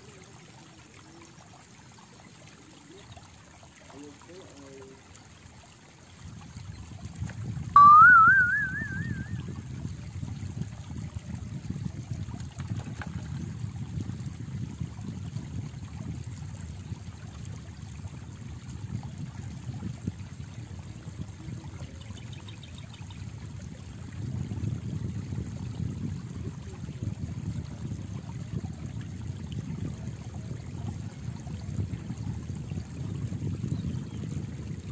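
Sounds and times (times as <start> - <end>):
warbling whistle-like tone: 7.8 - 9.5.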